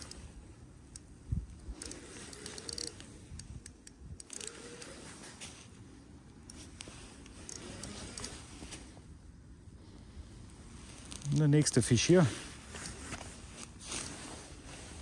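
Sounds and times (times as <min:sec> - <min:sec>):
fishing reel clicking: 0:00.0 - 0:00.2, 0:01.7 - 0:05.0
clothing rustle: 0:06.6 - 0:09.2, 0:10.6 - 0:15.0.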